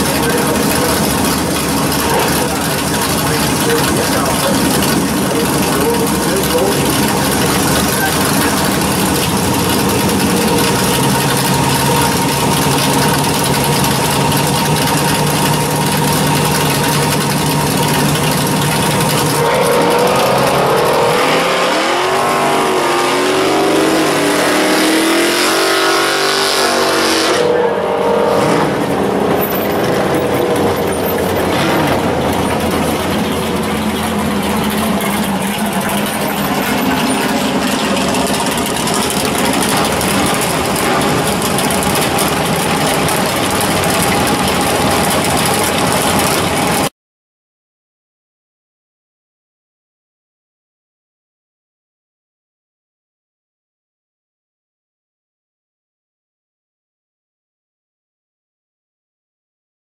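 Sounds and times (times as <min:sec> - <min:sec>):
car engine idling and revving: 0:00.0 - 0:46.9.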